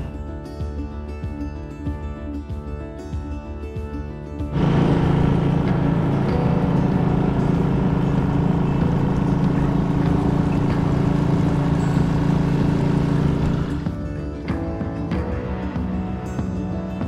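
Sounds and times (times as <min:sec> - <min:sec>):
outboard motor running: 0:04.5 - 0:14.7.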